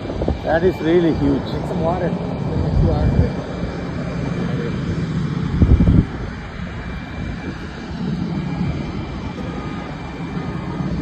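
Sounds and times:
faint thin whine: 0:00.0 - 0:11.0
jet engine rumble: 0:00.0 - 0:11.0.

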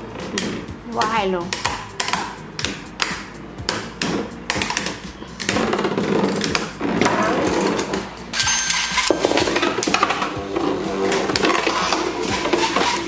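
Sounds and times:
metal spinning tops clashing: 0:06.3 - 0:10.4.

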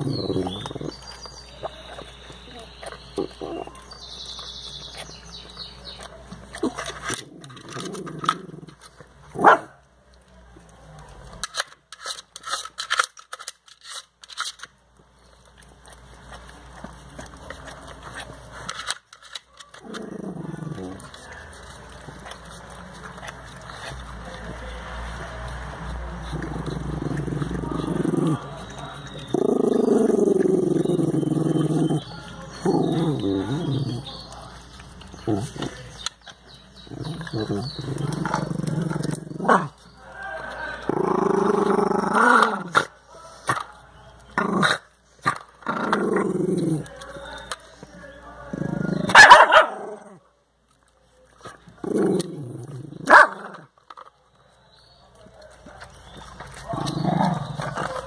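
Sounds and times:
puppy growling: 0:00.0 - 0:09.6, 0:19.7 - 0:43.0, 0:44.2 - 0:47.5, 0:48.4 - 0:50.2, 0:51.5 - 0:53.8, 0:55.3 - 0:58.0
dog licking and gnawing ice: 0:00.1 - 0:42.0, 0:46.4 - 0:49.6, 0:50.6 - 0:58.0.

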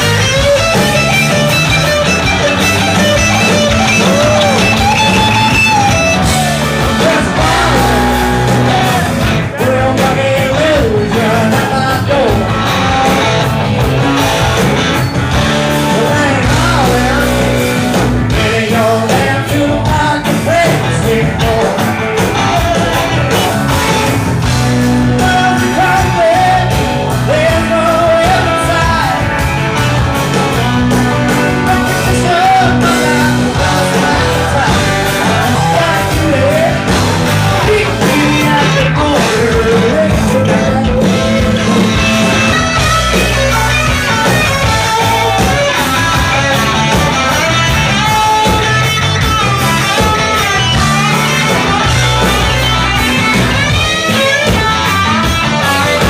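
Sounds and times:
bass: 0:00.0 - 0:56.0
drums: 0:00.0 - 0:56.0
electric guitar: 0:00.0 - 0:56.0
person singing: 0:03.8 - 0:13.4, 0:15.7 - 0:23.2, 0:25.0 - 0:29.5, 0:31.2 - 0:43.4.

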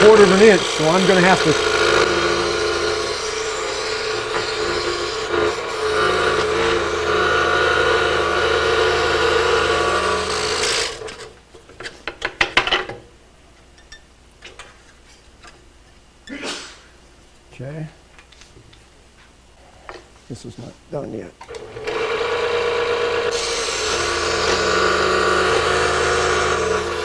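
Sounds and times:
scroll saw cutting wood: 0:00.0 - 0:11.3, 0:21.5 - 0:27.0.

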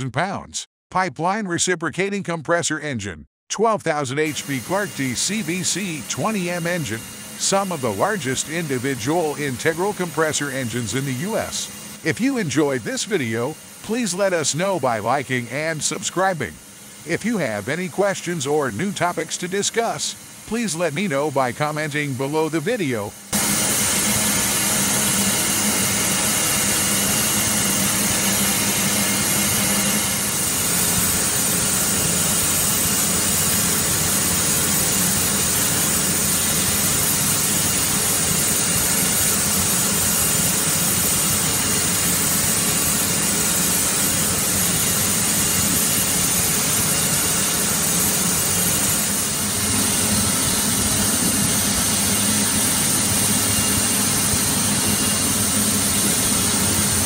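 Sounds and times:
grinding machine humming: 0:04.3 - 0:57.0.

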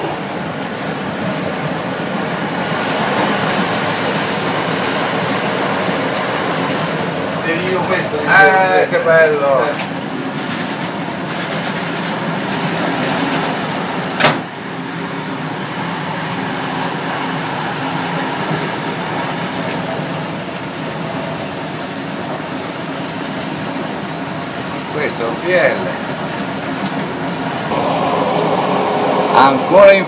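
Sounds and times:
diesel railcar engine hum: 0:00.0 - 0:30.0
train rolling noise: 0:00.0 - 0:30.0
sharp knock: 0:14.2 - 0:14.5.

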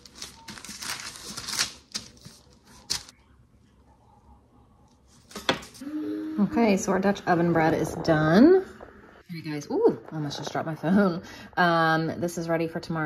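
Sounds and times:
parchment paper crinkling: 0:00.0 - 0:03.2.

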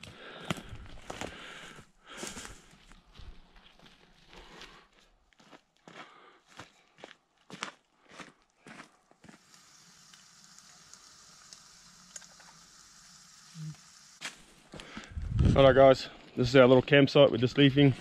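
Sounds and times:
footsteps on gravel: 0:02.1 - 0:09.4
gas stove burner hissing: 0:09.2 - 0:14.4.

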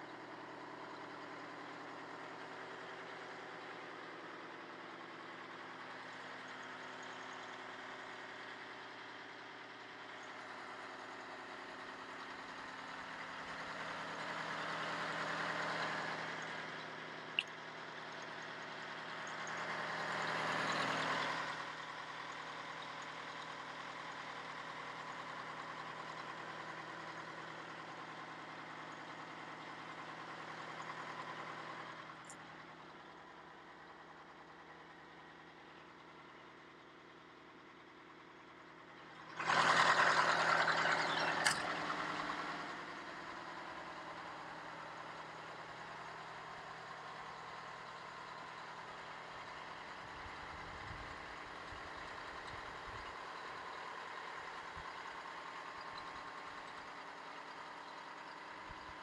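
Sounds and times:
diesel engine idling: 0:00.0 - 0:59.0
sharp click: 0:41.4 - 0:41.8.

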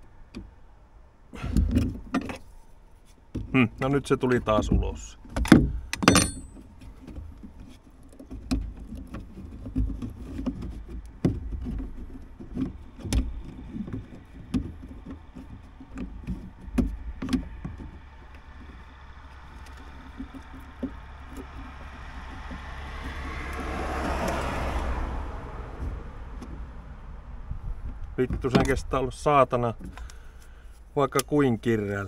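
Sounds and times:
low steady rumble: 0:00.0 - 0:32.0
metal latch clicking: 0:05.3 - 0:06.5
metal clinks: 0:06.0 - 0:06.6.

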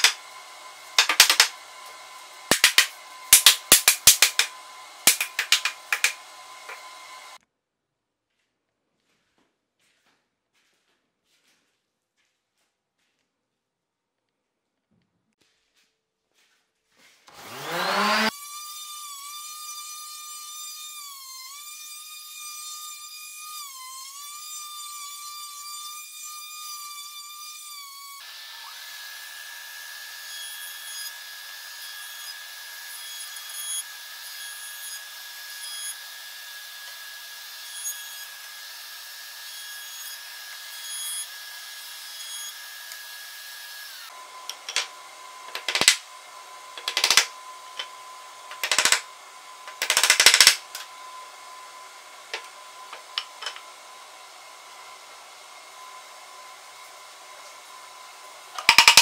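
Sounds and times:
jointer running: 0:00.0 - 0:07.4, 0:46.7 - 0:50.9
orbital sander whining: 0:00.0 - 0:07.4, 0:17.3 - 0:49.8
hammer tapping wooden dowels: 0:01.0 - 0:01.6, 0:02.5 - 0:06.9, 0:46.8 - 0:47.9, 0:48.5 - 0:49.0, 0:58.6 - 0:59.0.

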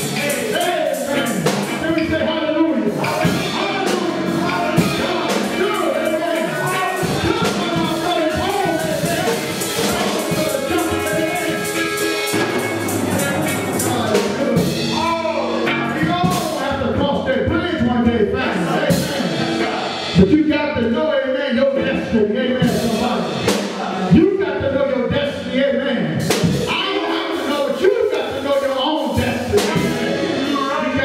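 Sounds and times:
gospel band with drums: 0:00.0 - 0:31.0.

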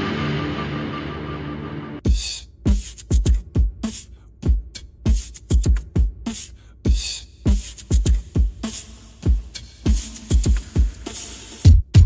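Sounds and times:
hip-hop beat: 0:00.0 - 0:12.0.

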